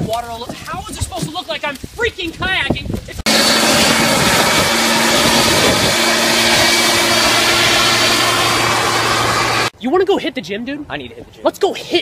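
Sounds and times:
leaf blower running: 0:03.3 - 0:09.7.

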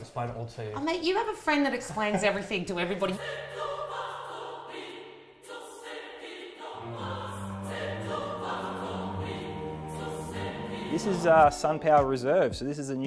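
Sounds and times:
choir singing long chords: 0:03.1 - 0:11.8.

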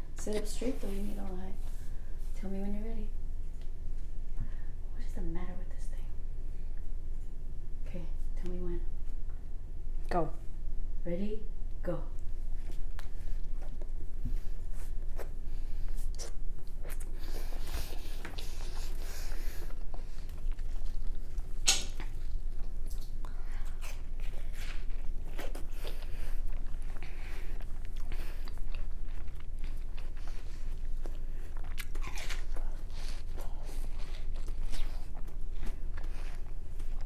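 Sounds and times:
boy chewing watermelon: 0:12.6 - 0:37.0.

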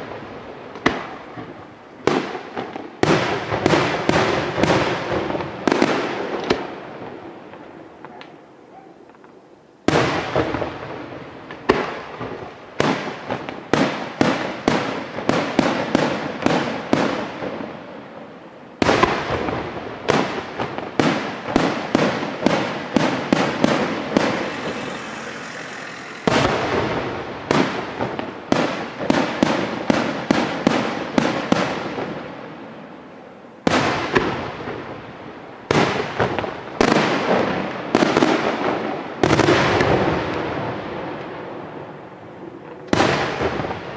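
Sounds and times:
firework shells bursting: 0:23.0 - 0:27.8.

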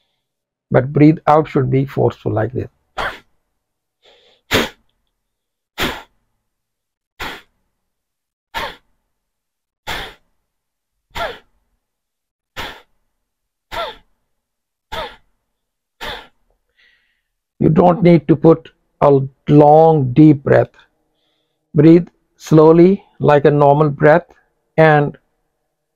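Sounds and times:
man's sharp exhalations: 0:04.0 - 0:04.8, 0:07.2 - 0:07.6.

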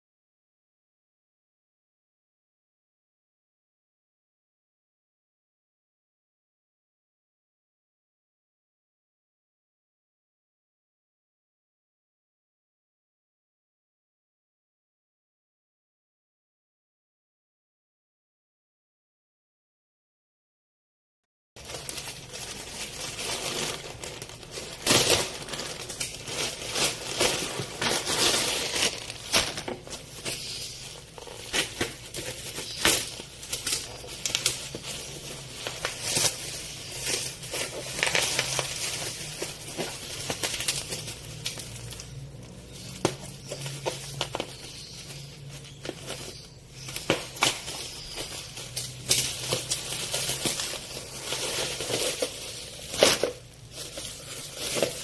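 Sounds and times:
plastic packaging crinkling: 0:21.6 - 0:55.0.

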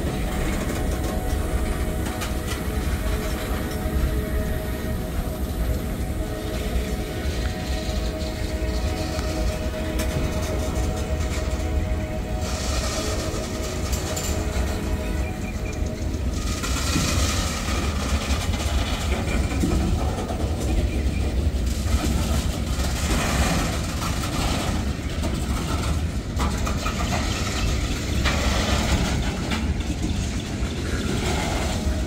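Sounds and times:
freight train wheels rumbling on rails: 0:00.0 - 0:32.0.

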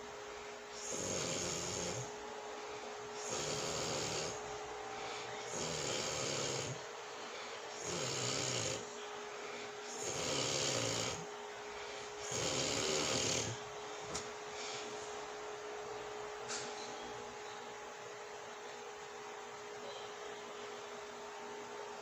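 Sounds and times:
woman snoring loudly: 0:00.8 - 0:02.1, 0:03.2 - 0:04.4, 0:05.5 - 0:06.8, 0:07.8 - 0:08.9, 0:09.9 - 0:11.2, 0:12.2 - 0:13.6.

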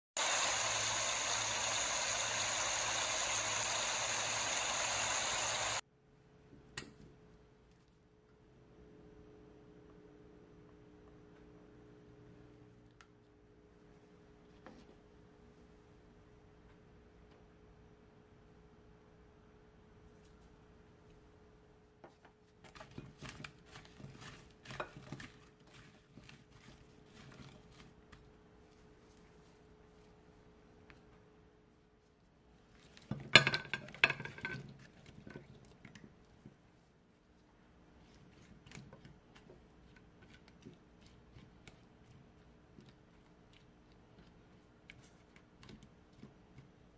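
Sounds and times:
spatula tossing potatoes in glass bowl: 0:22.6 - 0:29.6.

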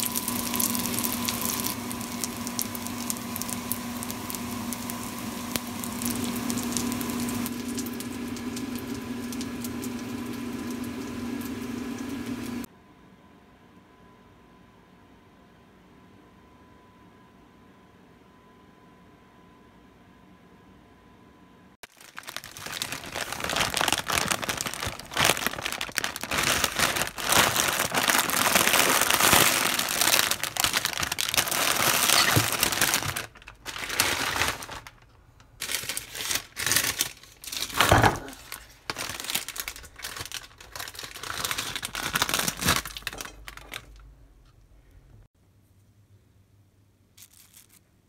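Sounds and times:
plastic wrappers crinkling: 0:21.8 - 0:44.1, 0:47.2 - 0:47.9.

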